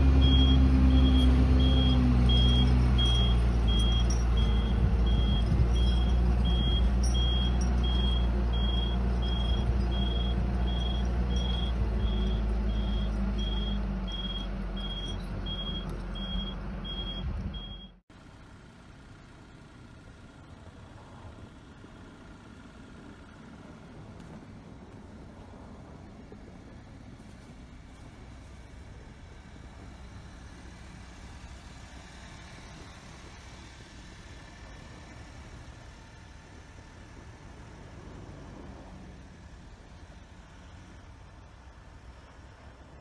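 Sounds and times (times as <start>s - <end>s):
heavy machinery engine running: 0.0s - 18.0s
reversing alarm beeping: 0.2s - 18.0s.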